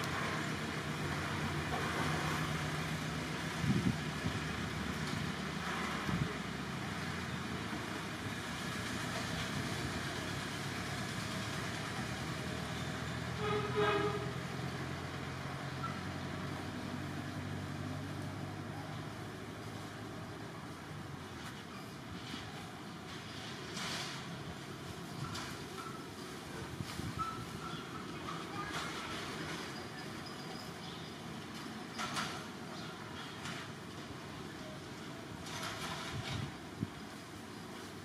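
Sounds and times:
low engine hum: 0:00.0 - 0:25.9.

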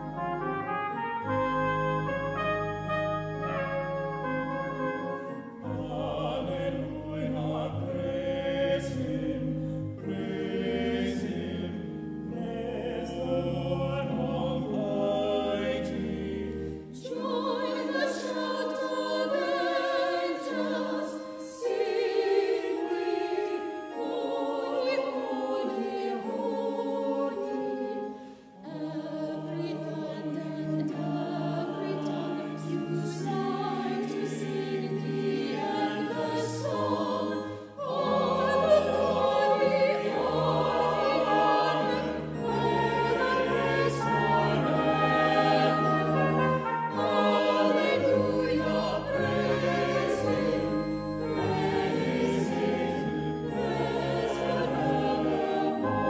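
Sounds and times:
choir singing an anthem: 0:00.0 - 0:56.0
church organ chords: 0:00.0 - 0:56.0.

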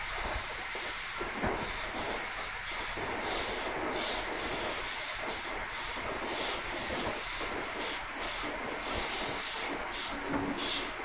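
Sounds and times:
high pulsing hiss: 0:00.0 - 0:11.0
train rolling rumble: 0:00.0 - 0:11.0.

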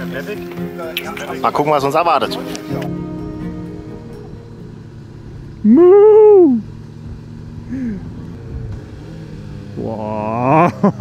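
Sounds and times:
motorcycle running: 0:00.0 - 0:11.0
loud rising and falling tone: 0:02.8 - 0:11.0.

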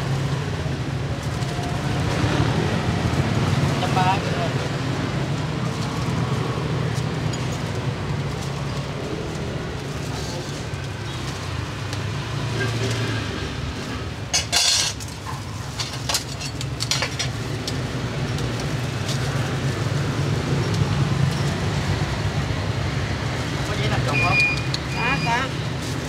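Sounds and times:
low rumble of street traffic: 0:00.0 - 0:26.0
metal utensils and bowls clinking: 0:07.0 - 0:08.6, 0:14.2 - 0:18.4.

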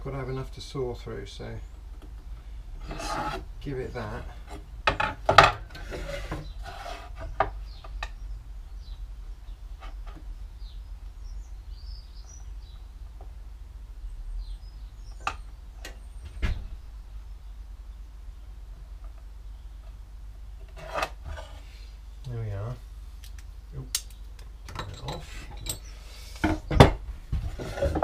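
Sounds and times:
low steady hum: 0:00.0 - 0:28.0
faint bird chirps: 0:07.6 - 0:13.1, 0:14.0 - 0:18.5.

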